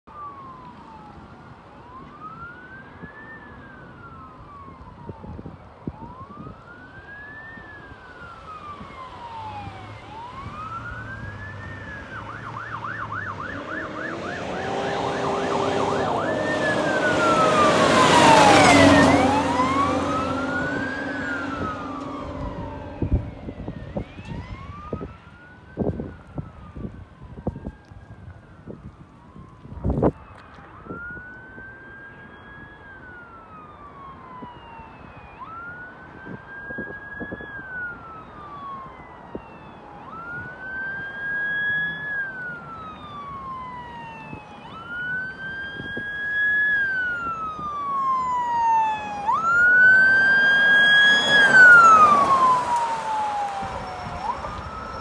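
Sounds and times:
electronic siren wailing: 0:00.1 - 0:55.0
wind bumps on microphone: 0:20.6 - 0:31.3.

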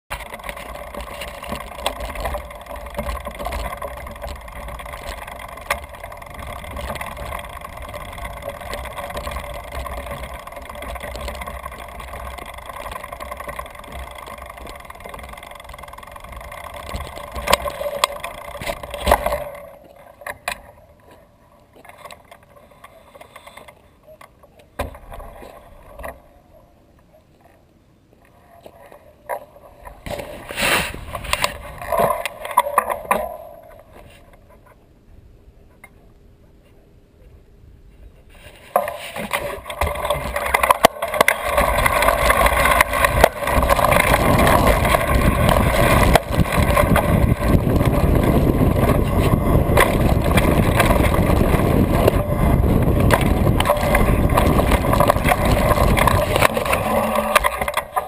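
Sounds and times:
tyres rushing on dirt: 0:00.1 - 0:19.9, 0:38.6 - 0:58.0
bike rattle: 0:00.1 - 0:21.2, 0:29.3 - 0:34.8, 0:38.3 - 0:58.0
clicks and rustles: 0:00.1 - 0:26.4, 0:28.2 - 0:34.8, 0:37.9 - 0:58.0
wind on microphone: 0:41.4 - 0:58.0.

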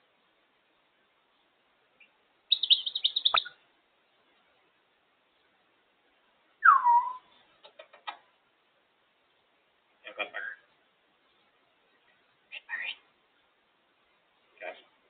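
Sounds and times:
parrot chirping and whistling: 0:02.5 - 0:03.5, 0:06.6 - 0:07.3.

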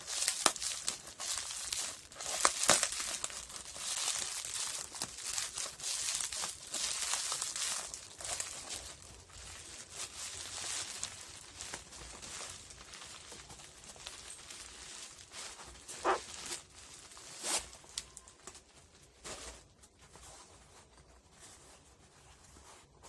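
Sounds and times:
sharp crackles: 0:00.0 - 0:15.2
bubble wrap crinkling: 0:00.0 - 0:23.0.

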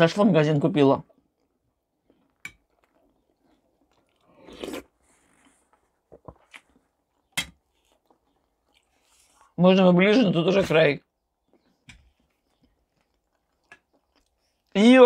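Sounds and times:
soft chewing: 0:01.1 - 0:09.6, 0:11.0 - 0:14.8
slurp: 0:03.9 - 0:06.7.

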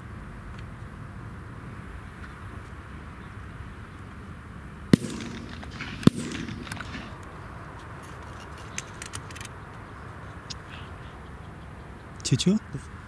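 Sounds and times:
shotgun shots with echo: 0:05.0 - 0:07.4.

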